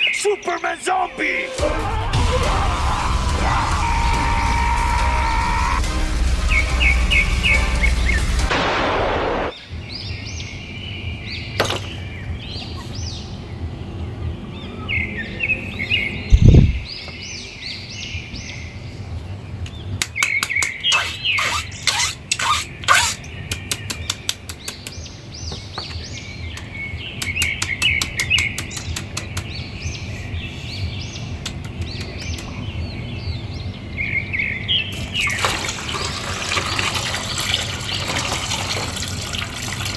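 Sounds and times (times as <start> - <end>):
small birds chirping: 0.0 - 1.2, 9.5 - 39.1.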